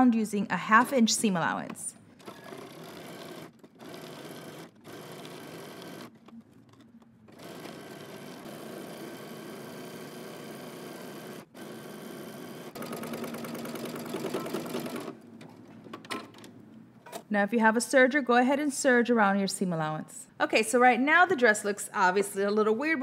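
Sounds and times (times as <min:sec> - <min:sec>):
sewing machine stitching: 0:02.1 - 0:15.2.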